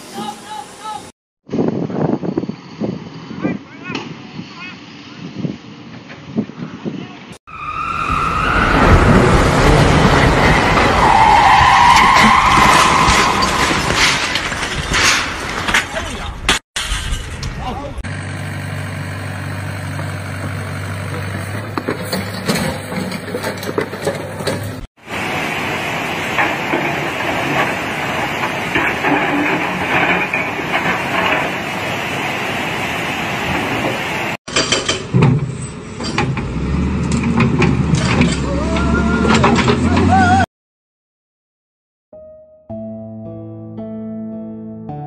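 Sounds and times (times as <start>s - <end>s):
falling masonry rush: 8.5s - 17.2s, 21.2s - 35.1s
river rushing through whitewater: 25.0s - 29.0s, 30.6s - 34.4s.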